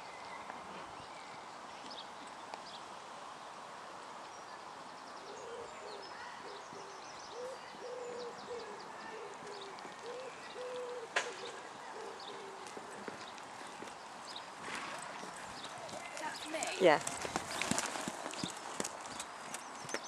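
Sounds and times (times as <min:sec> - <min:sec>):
dove cooing: 0:05.3 - 0:13.1.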